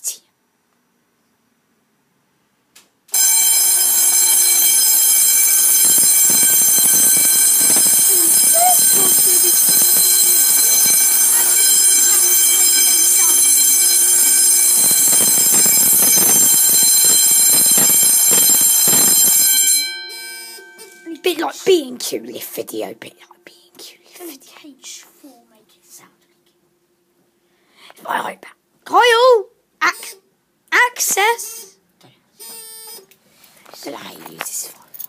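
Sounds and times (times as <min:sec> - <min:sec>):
fire alarm sounding: 0:03.1 - 0:21.5.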